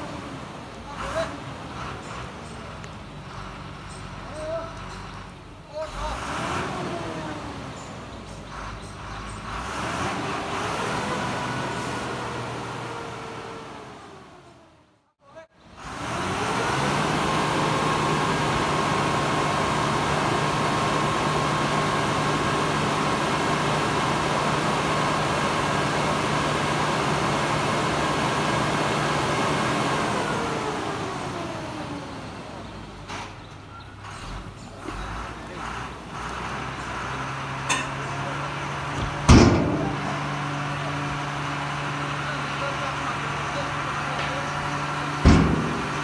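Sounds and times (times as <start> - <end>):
diesel truck engine revving: 0.0 - 46.0
hydraulic whine: 36.1 - 46.0.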